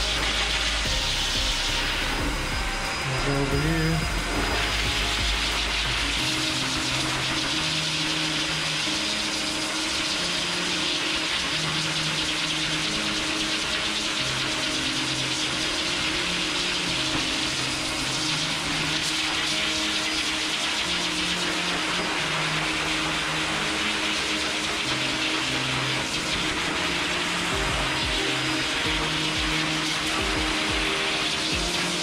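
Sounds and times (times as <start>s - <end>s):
dog dryer blowing air: 0.0s - 32.0s.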